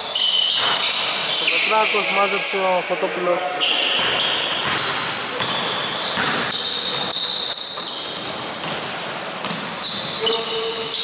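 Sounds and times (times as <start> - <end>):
sneakers squeaking on floor: 0.0 - 11.0
basketball bouncing on hardwood: 4.0 - 7.2.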